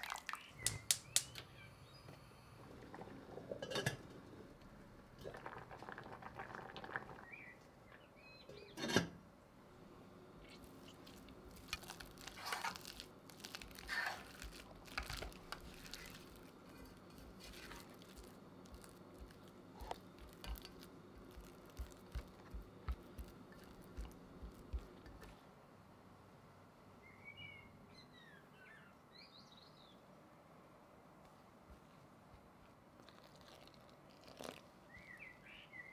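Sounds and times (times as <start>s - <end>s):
potatoes squelching under masher: 10.6s - 25.3s.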